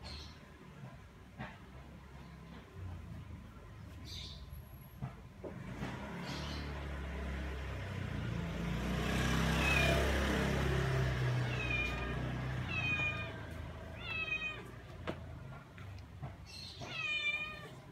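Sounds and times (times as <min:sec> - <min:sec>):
cat meowing: 0:09.6 - 0:10.1, 0:11.1 - 0:15.0, 0:16.6 - 0:17.9.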